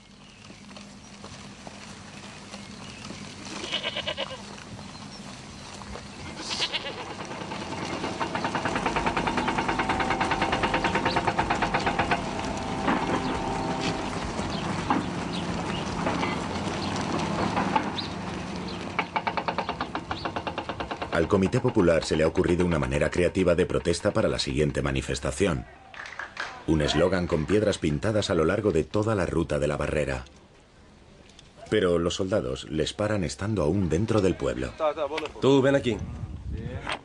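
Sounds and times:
goats bleating: 3.4s - 4.6s, 6.2s - 7.6s.

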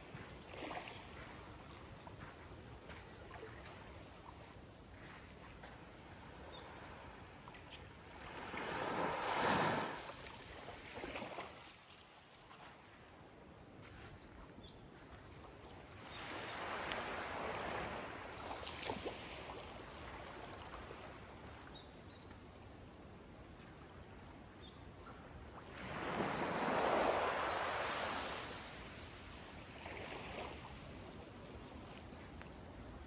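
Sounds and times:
small waves lapping on sand: 0.0s - 24.4s, 25.5s - 33.0s.

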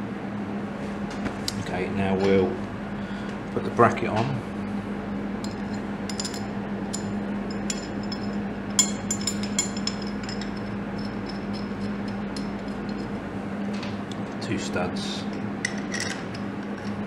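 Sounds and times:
steady low hum: 0.0s - 17.0s
metal bracket clinking: 5.4s - 13.1s.

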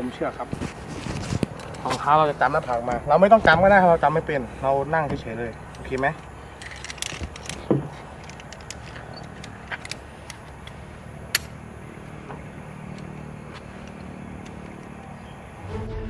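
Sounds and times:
climbing gear clicking: 4.8s - 15.0s.

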